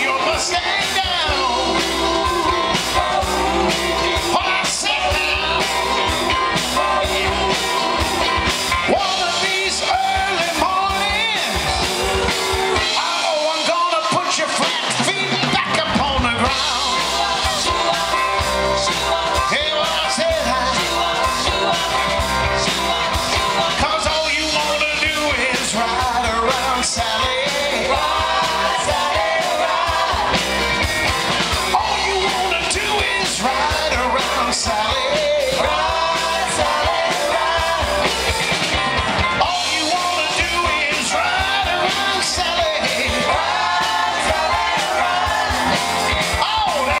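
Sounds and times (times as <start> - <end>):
electric guitar: 0.0 - 13.3, 14.6 - 47.0
harmonica: 0.0 - 13.3
person singing lead: 0.0 - 13.6
backing vocals: 0.0 - 47.0
drums: 0.0 - 47.0.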